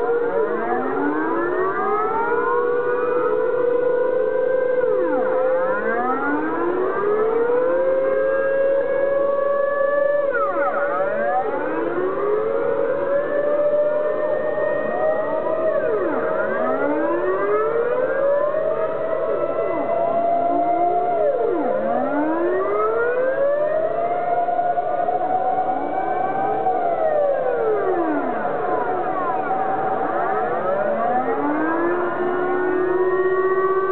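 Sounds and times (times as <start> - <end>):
air-raid sirens rising and falling: 0.0 - 33.9
steady siren tone climbing in pitch: 0.0 - 33.9.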